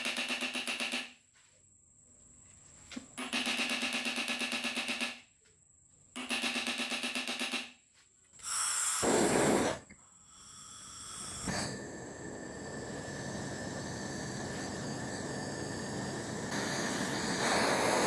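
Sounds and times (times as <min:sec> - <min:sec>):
gas torch flame hissing: 0:08.4 - 0:18.0.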